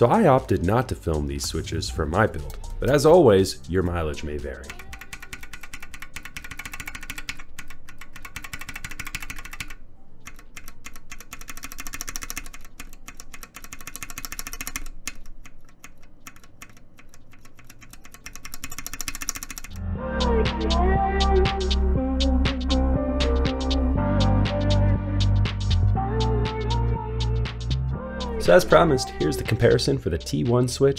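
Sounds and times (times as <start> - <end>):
mechanical keyboard clacking: 3.8 - 19.8.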